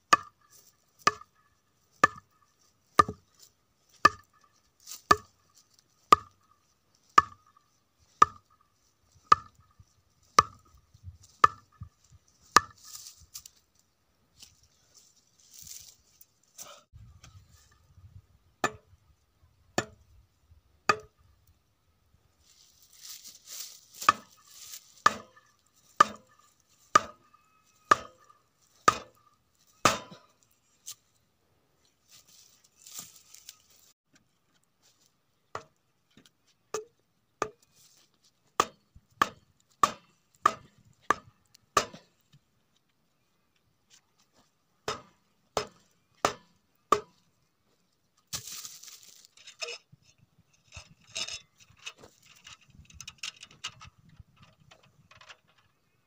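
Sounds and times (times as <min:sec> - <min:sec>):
club pounding wooden stakes: 0:00.1 - 0:13.5, 0:18.6 - 0:19.0, 0:19.8 - 0:20.1, 0:20.9 - 0:21.2, 0:23.0 - 0:27.3, 0:27.9 - 0:30.5, 0:35.5 - 0:37.8, 0:38.5 - 0:42.3, 0:44.8 - 0:47.3
rustling and scraping: 0:01.9 - 0:18.0, 0:22.4 - 0:31.2, 0:31.8 - 0:35.2, 0:47.7 - 0:56.0.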